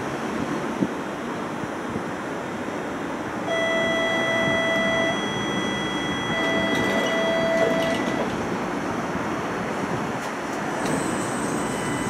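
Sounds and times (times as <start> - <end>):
tram running noise: 3.8 - 12.0.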